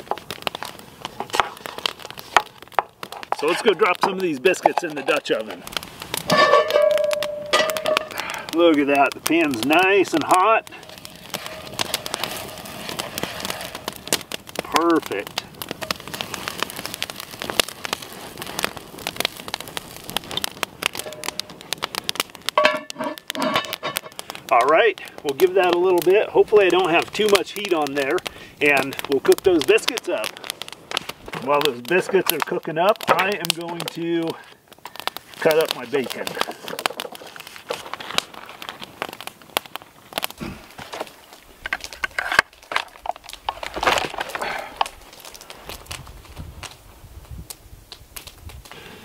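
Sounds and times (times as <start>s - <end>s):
dough sizzling and crackling: 0.0s - 49.0s
cast iron lid clanking: 6.3s - 8.2s, 22.6s - 24.2s.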